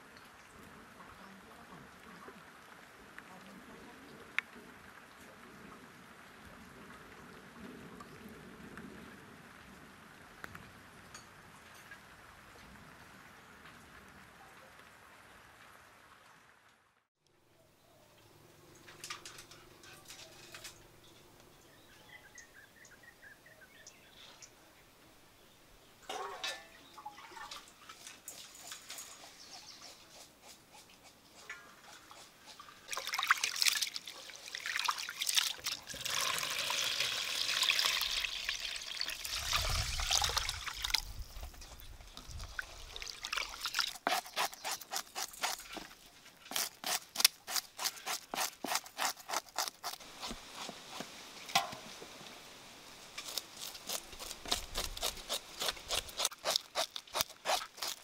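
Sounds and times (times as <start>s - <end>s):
water splashing in pot of rice: 32.9s - 41.0s, 42.3s - 44.0s
knife scraping fish scales: 43.9s - 51.0s, 53.2s - 58.0s.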